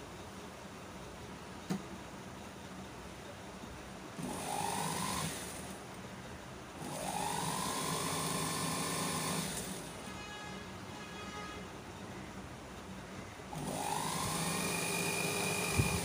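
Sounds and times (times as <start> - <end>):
industrial sewing machine running: 4.2 - 5.7, 6.8 - 10.0, 13.5 - 16.0.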